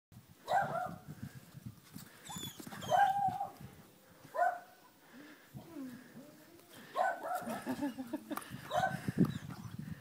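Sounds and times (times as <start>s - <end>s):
puppies barking: 6.8s - 8.0s, 8.7s - 9.1s.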